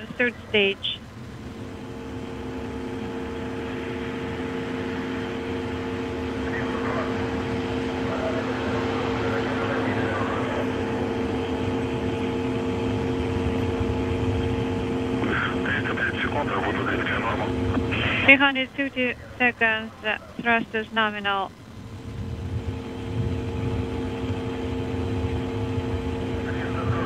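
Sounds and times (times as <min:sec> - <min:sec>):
faint voices: 0:00.0 - 0:01.0, 0:06.3 - 0:12.3, 0:15.1 - 0:21.6, 0:26.2 - 0:27.0
steady hum of held tones: 0:00.0 - 0:27.0.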